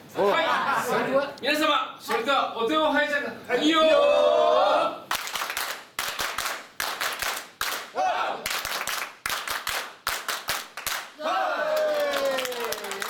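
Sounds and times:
group clapping rhythmically: 0:05.1 - 0:13.0.

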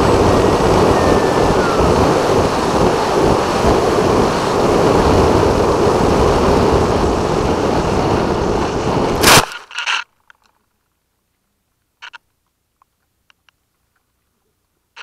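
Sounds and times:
plane hitting ground: 0:00.0 - 0:09.3
wind rushing: 0:00.0 - 0:09.4.

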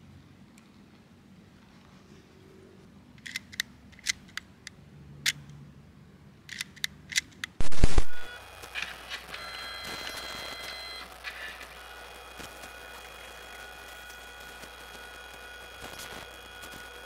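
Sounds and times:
loud burst of noise: 0:07.6 - 0:08.3.

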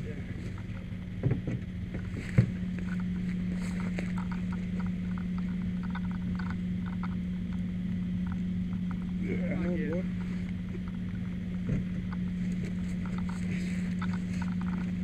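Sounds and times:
machinery humming: 0:00.0 - 0:15.0
light ticks and crackles: 0:01.9 - 0:15.0.

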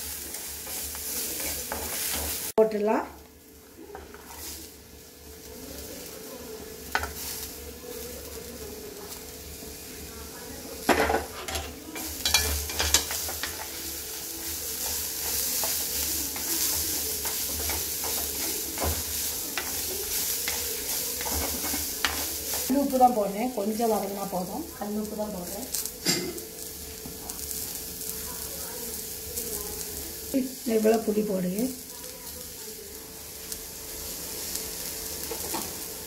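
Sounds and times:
spatula scraping a pan: 0:00.0 - 0:02.5, 0:03.9 - 0:04.8, 0:11.2 - 0:22.8
vegetables sizzling in oil: 0:00.0 - 0:36.0.

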